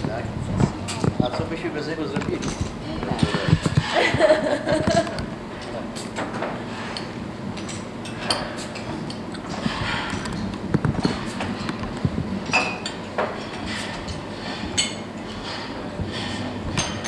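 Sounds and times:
tableware clinking: 0:06.2 - 0:10.4, 0:12.4 - 0:17.0
glass ringing: 0:12.5 - 0:13.1.

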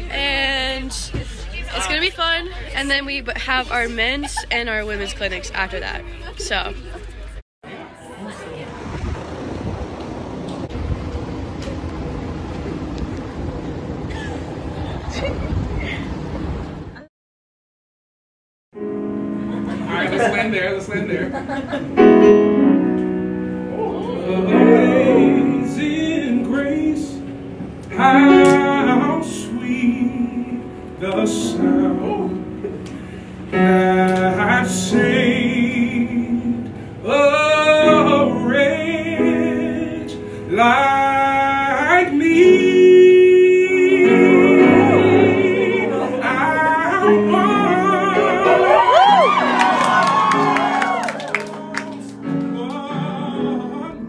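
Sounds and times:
grand piano accompaniment: 0:18.8 - 0:54.0
man singing with vibrato: 0:23.9 - 0:49.6, 0:51.2 - 0:54.0
singer breathing: 0:32.9 - 0:33.4.

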